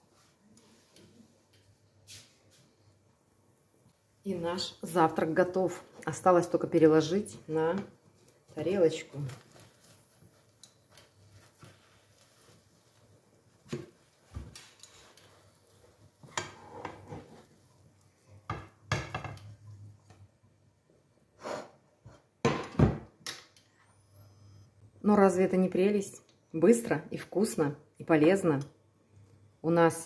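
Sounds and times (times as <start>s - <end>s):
spatula scraping in frying pan: 8.6s - 17.7s.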